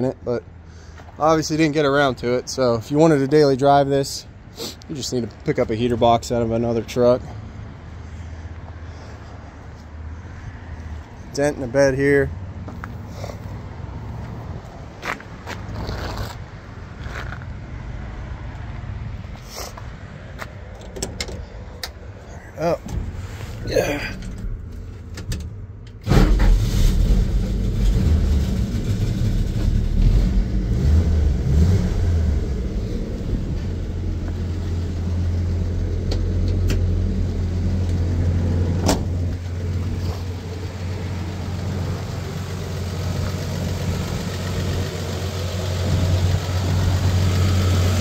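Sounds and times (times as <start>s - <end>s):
engine starting and idling: 26.0s - 30.5s.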